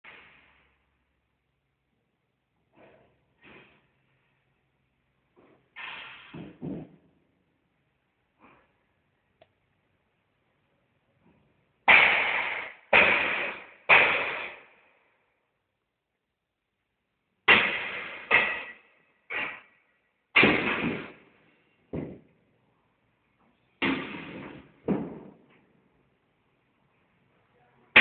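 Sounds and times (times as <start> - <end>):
hammer striking floor with metallic ring: 18.3 - 19.7.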